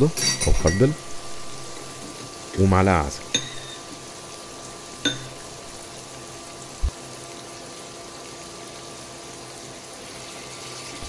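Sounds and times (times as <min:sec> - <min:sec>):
faint steady hum: 0:00.0 - 0:08.4
shrimp sizzling in a frying pan: 0:00.0 - 0:11.0.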